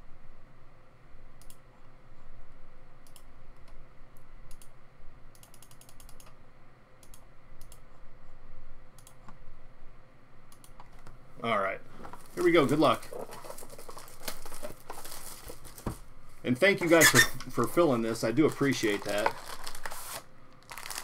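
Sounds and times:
faint steady hum: 0.0s - 21.0s
keyboard clicks: 5.4s - 6.4s.

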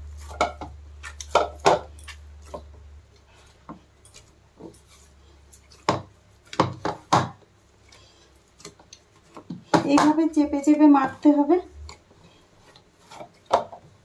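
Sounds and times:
dough thumping against plastic bowl: 5.8s - 7.5s, 9.4s - 10.4s.

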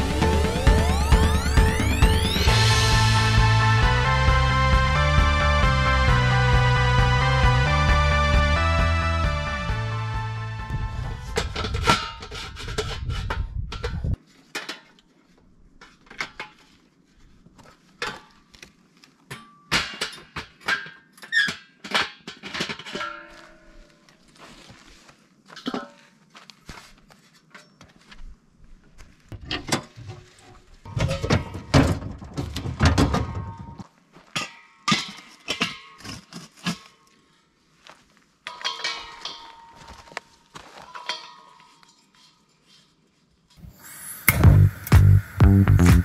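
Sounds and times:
background music: 0.0s - 11.4s, 44.3s - 46.0s
metal clanks and clicks: 38.5s - 40.2s.

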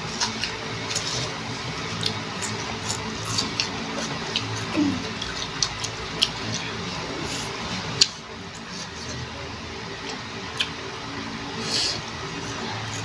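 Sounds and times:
crunchy chewing: 0.1s - 9.3s, 10.0s - 10.8s.

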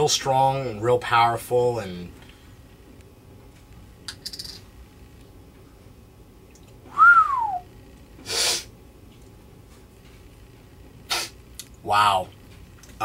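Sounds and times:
man whistling: 6.9s - 7.7s.

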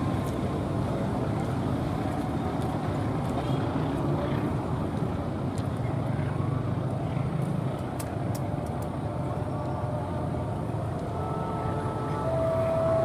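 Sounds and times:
freight train rumbling past: 0.0s - 5.4s, 8.7s - 13.0s
faint steady tone: 9.2s - 13.0s.

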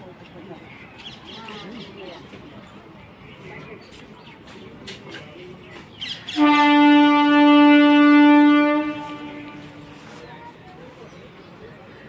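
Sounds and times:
train horn: 6.3s - 10.1s.

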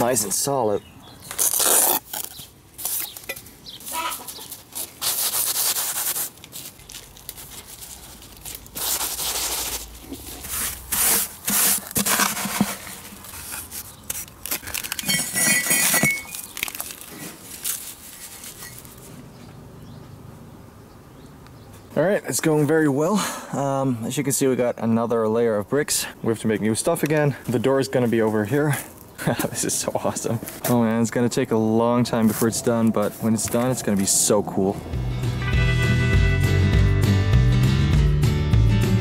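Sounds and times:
trowel scraping wet mortar: 8.8s - 14.3s, 30.0s - 34.7s
bricks shifted into mortar: 8.8s - 19.0s.

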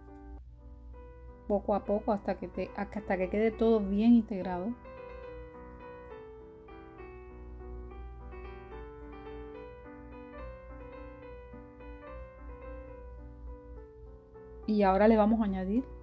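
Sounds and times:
piano melody: 0.0s - 16.0s.

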